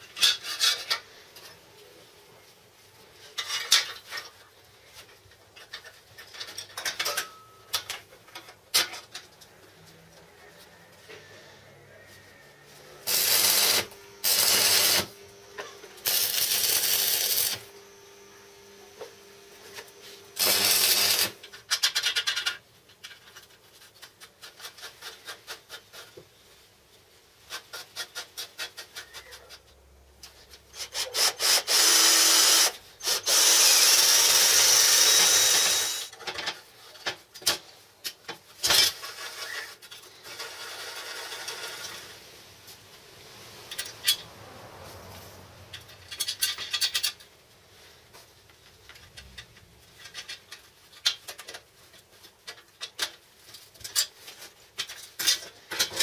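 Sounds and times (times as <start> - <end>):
metal scraping and rubbing: 8.4 - 26.2.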